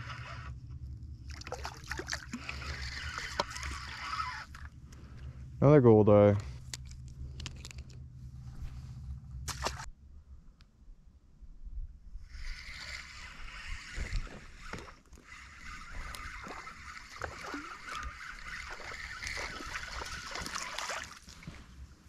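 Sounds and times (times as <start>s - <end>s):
fishing reel whirring: 0.0s - 5.3s, 12.2s - 21.3s.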